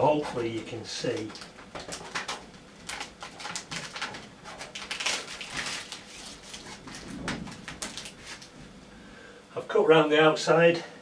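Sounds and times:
plastic tape rustling and crackling: 0:00.1 - 0:08.6.

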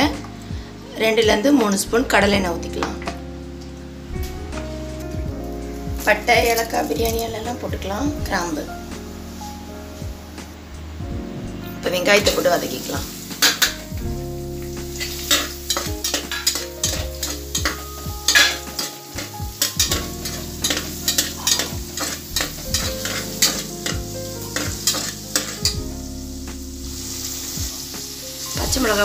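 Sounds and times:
onions sizzling in oil: 0:11.9 - 0:29.0
steel spatula scraping pot: 0:15.0 - 0:25.8.

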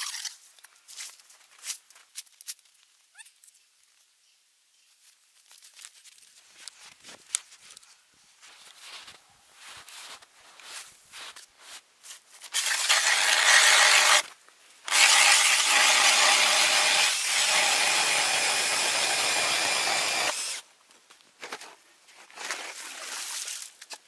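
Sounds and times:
footsteps crunching in snow: 0:00.8 - 0:02.6, 0:05.0 - 0:12.5
drill auger cutting ice: 0:12.6 - 0:14.2, 0:14.9 - 0:20.6.

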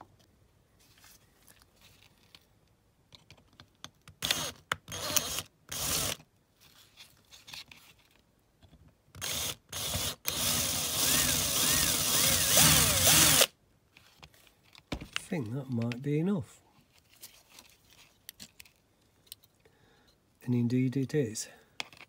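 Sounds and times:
power drill drilling metal: 0:04.2 - 0:06.2, 0:09.2 - 0:13.5.

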